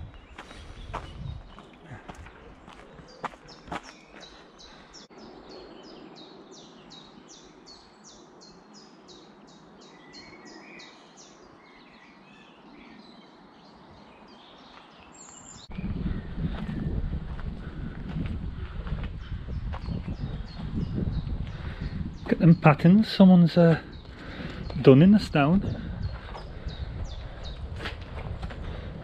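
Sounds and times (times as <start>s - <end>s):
footsteps on path: 0.0s - 5.1s, 14.4s - 22.6s, 23.7s - 29.0s.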